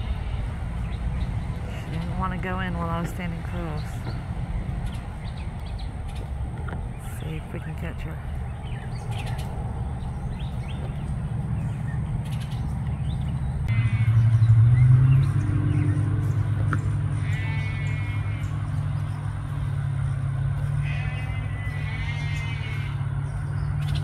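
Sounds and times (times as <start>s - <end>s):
low engine hum: 0.0s - 24.0s
animal bleating: 13.7s - 14.2s, 17.1s - 18.8s, 20.6s - 23.3s.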